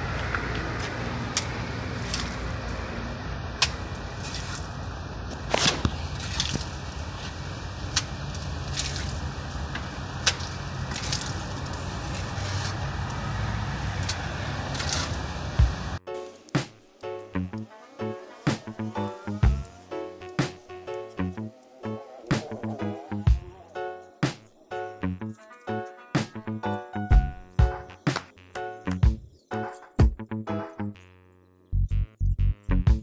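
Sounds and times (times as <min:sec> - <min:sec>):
trowel slapping and scraping render: 0:01.4 - 0:02.5, 0:03.6 - 0:04.8, 0:05.4 - 0:07.4, 0:08.0 - 0:09.3, 0:10.2 - 0:12.8, 0:14.0 - 0:15.2.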